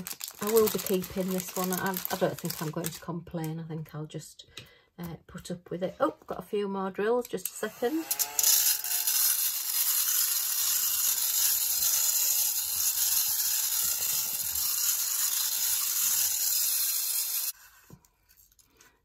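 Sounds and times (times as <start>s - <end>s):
handheld vacuum cleaner hissing: 7.5s - 17.7s.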